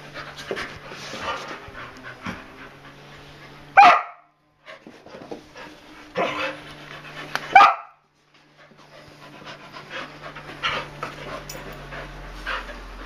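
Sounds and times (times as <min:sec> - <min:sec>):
dog panting: 0:00.0 - 0:03.7, 0:04.6 - 0:07.6, 0:08.5 - 0:13.0
dog barking: 0:03.8 - 0:04.3, 0:07.5 - 0:08.0.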